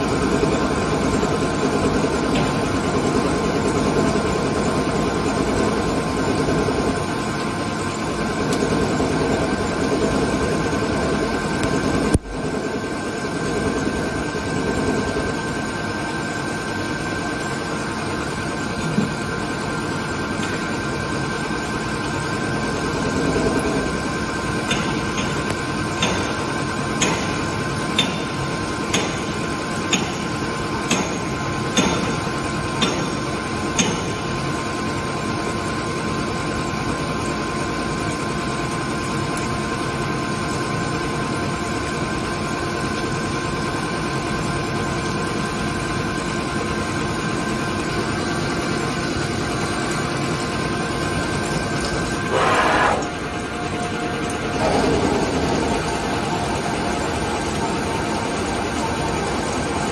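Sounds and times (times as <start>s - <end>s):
lathe machine whine: 41.6s - 59.9s.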